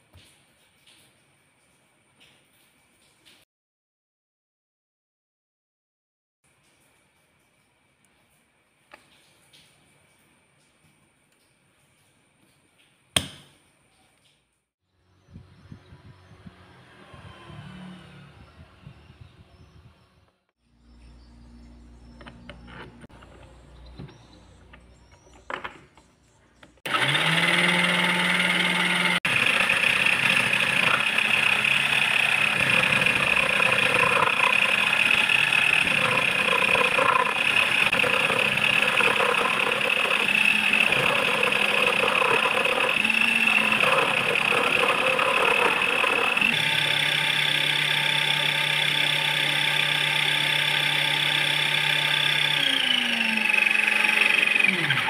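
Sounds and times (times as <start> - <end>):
lathe motor whining: 26.9 - 55.0
cutting tool scraping metal: 27.6 - 49.6.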